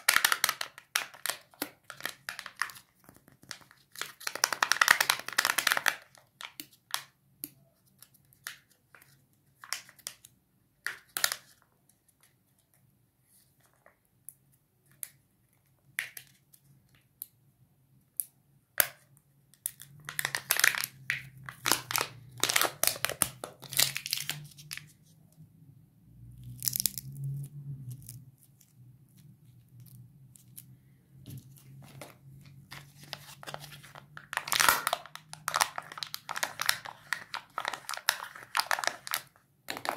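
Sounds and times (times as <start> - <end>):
foil crinkling and tearing: 32.7 - 39.3.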